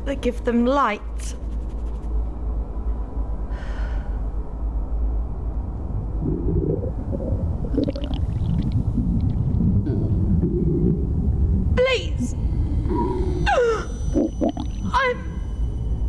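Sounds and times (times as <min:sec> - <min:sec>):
deep rumbling drone: 0:01.0 - 0:16.0
low warbling voice-like sounds: 0:05.9 - 0:15.5.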